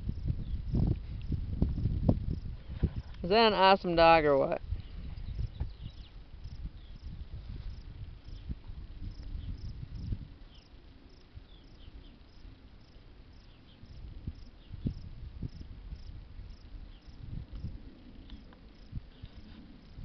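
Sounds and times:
high insect chirping: 0.0 - 2.5, 4.6 - 20.0
low rumble: 0.0 - 3.7.

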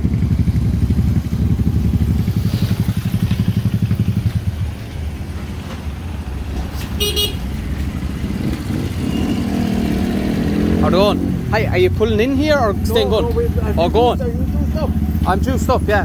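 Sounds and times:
motorcycle engines running: 0.0 - 16.0
high-pitched horn beep: 9.0 - 9.7.

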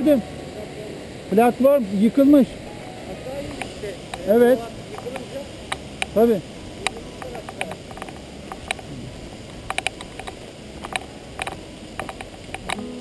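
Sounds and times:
gravel crunching and clicking: 6.8 - 12.8.

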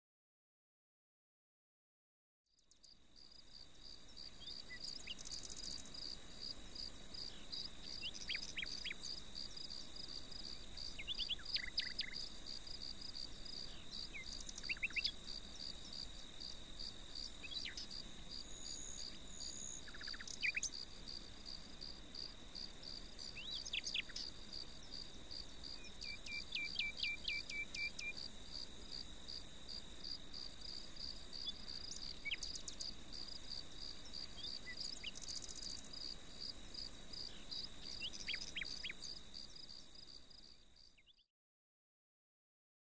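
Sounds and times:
insects buzzing: 2.8 - 41.1
bird chirps: 4.3 - 5.8, 7.2 - 9.2, 10.8 - 12.3, 13.6 - 15.2, 17.4 - 18.0, 18.6 - 20.8, 23.2 - 24.3, 25.7 - 28.2, 31.4 - 32.9, 34.2 - 35.8, 37.2 - 39.2, 40.8 - 41.3.

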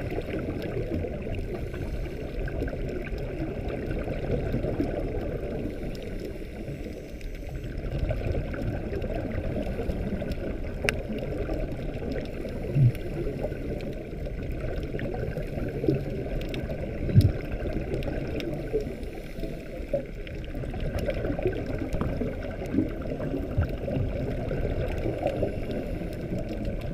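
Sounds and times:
muffled underwater rumble: 0.0 - 26.9
faint clicks: 0.2 - 26.9.

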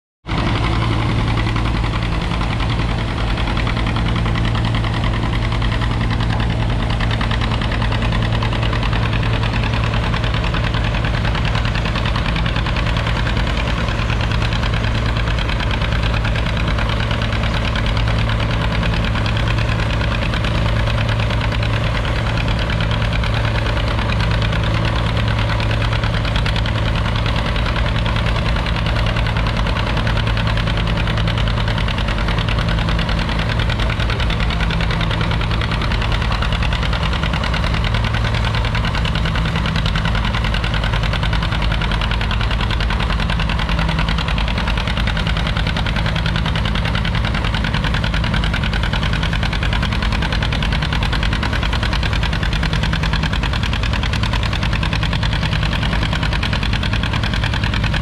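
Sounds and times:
tractor engine running under load: 0.2 - 58.0.

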